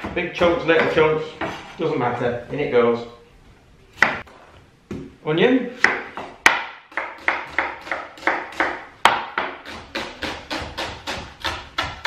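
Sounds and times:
knife chopping on wooden board: 5.8 - 12.0.

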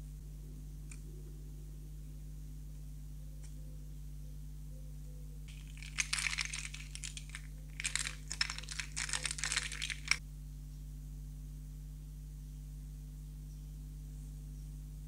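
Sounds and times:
plastic toys clicking together: 5.5 - 10.2.

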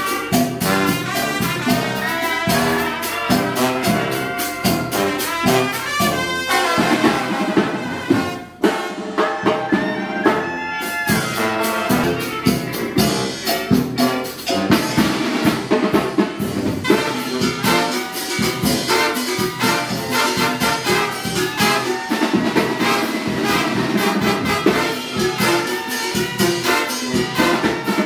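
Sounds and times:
brass band playing: 0.0 - 28.0.

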